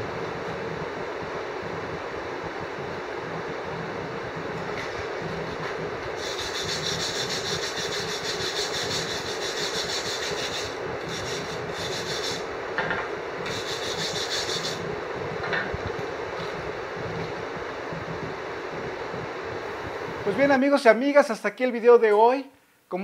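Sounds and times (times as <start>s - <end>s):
steady hum: 0.0s - 23.0s
dry rasping scraping: 6.2s - 12.4s, 13.5s - 14.8s.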